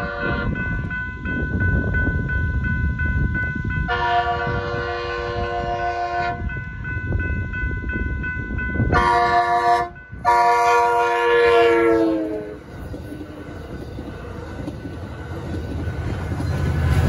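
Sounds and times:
train horn blasts: 0:00.0 - 0:00.6, 0:03.8 - 0:06.5, 0:08.9 - 0:12.7
railroad crossing bell ringing: 0:00.0 - 0:17.0
train cars rumbling over crossing: 0:00.0 - 0:17.0.

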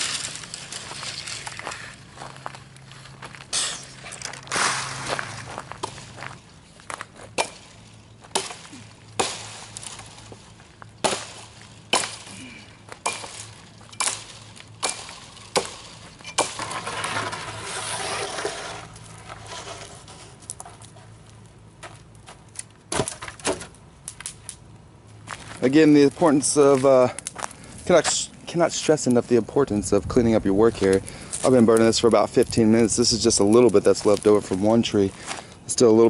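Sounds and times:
axe chopping wood: 0:07.3 - 0:07.7, 0:08.3 - 0:10.1, 0:11.0 - 0:16.8, 0:22.9 - 0:23.7.

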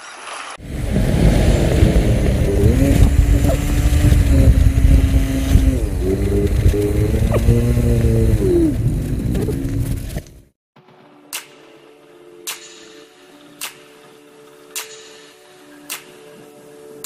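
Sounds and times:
scooter engine running: 0:00.6 - 0:10.5
wind rumble on microphone: 0:00.6 - 0:10.5.

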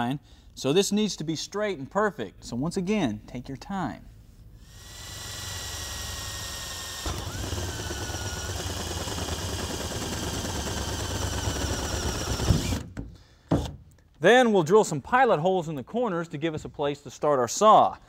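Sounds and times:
drill boring through sheet metal: 0:04.6 - 0:12.9.

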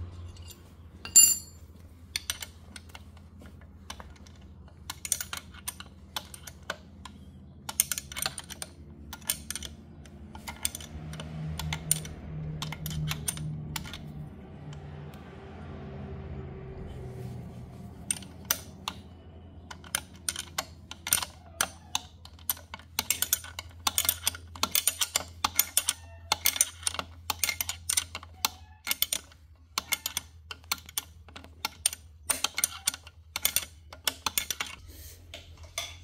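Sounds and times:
spanner clicking on nut: 0:03.9 - 0:14.8, 0:18.0 - 0:34.8.

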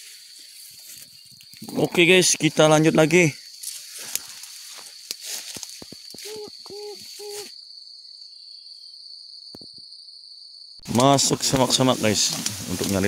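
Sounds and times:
grass and brush rustling: 0:00.0 - 0:07.6, 0:10.8 - 0:13.0
high insect drone: 0:00.0 - 0:13.0
low hoot-like notes: 0:06.2 - 0:07.5.

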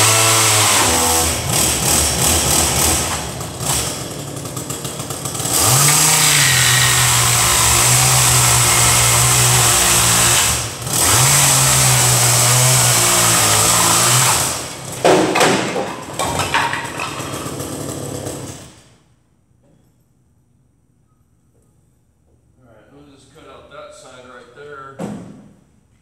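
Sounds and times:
power tool whining on wood: 0:00.0 - 0:15.0
sharp knocks: 0:13.7 - 0:17.4.

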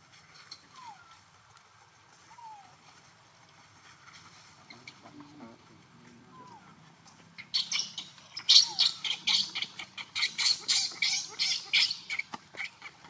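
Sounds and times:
monkey screeching: 0:07.4 - 0:13.0.

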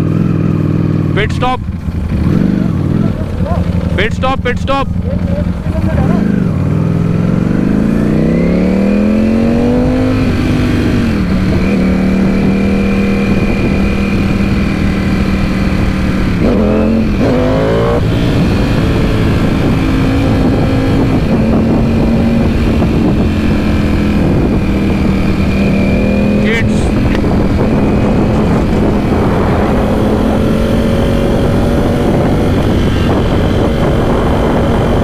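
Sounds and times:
motorcycle engine accelerating: 0:00.0 - 0:35.0
wind noise: 0:05.9 - 0:35.0.

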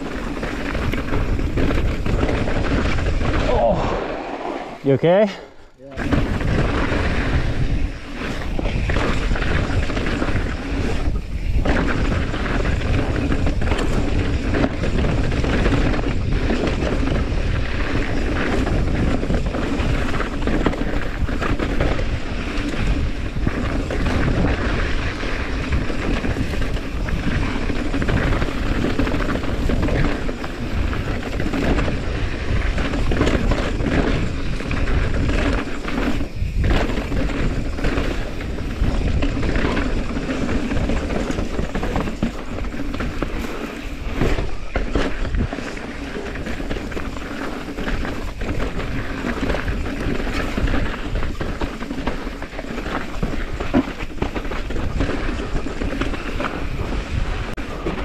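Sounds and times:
bike knocking and rattling: 0:00.0 - 0:03.8, 0:04.8 - 0:58.0
tyres rolling over dirt and stones: 0:00.0 - 0:05.3, 0:05.9 - 0:58.0
wind buffeting microphone: 0:00.0 - 0:58.0.

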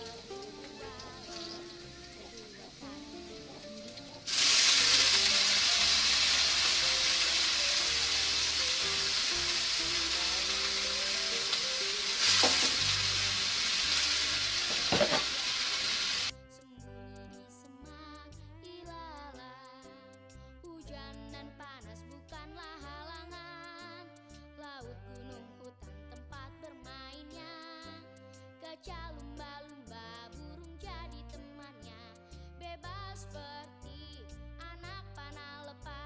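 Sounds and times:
food sizzling in a wok: 0:00.0 - 0:16.3
faint background music: 0:00.0 - 0:36.0.

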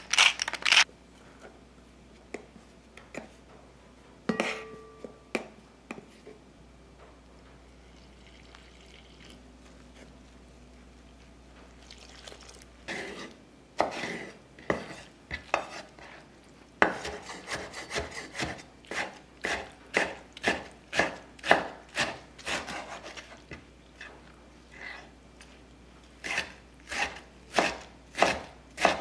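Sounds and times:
knife chopping on wooden board: 0:16.8 - 0:23.2, 0:26.2 - 0:29.0.

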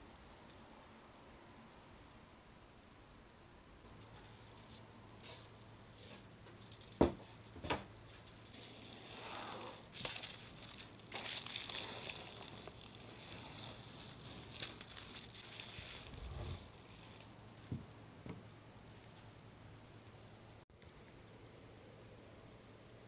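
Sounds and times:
plastic film crinkling and tearing: 0:08.2 - 0:17.3.

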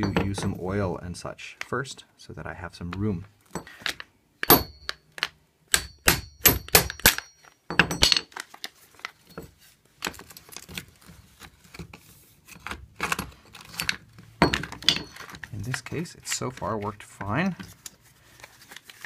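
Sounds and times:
hammer striking metal axle: 0:04.4 - 0:05.0, 0:05.7 - 0:08.2.

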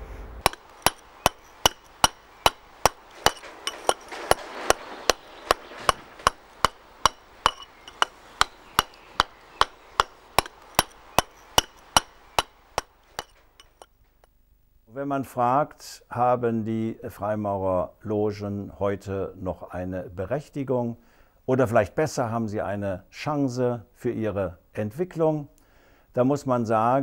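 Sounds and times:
wooden mallet striking chisel: 0:00.4 - 0:13.9.

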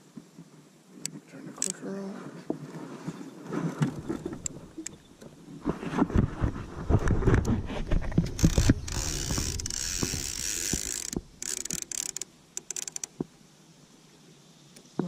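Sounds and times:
fishing reel knocks and clicks: 0:08.2 - 0:13.1
fishing line hissing off reel: 0:08.2 - 0:13.2.

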